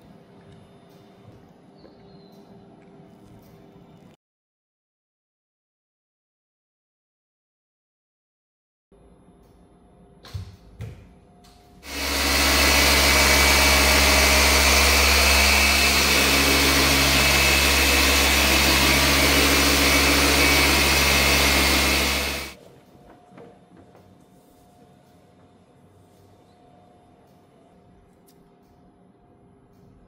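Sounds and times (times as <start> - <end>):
machine polisher running: 11.8 - 22.6.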